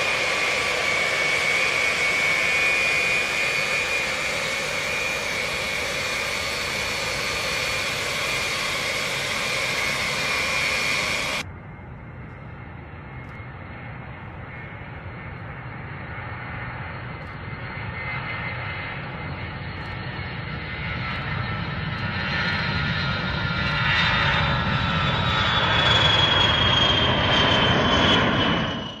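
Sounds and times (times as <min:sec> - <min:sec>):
high turbine whine: 0:00.0 - 0:29.0
jet engine roar: 0:00.0 - 0:29.0.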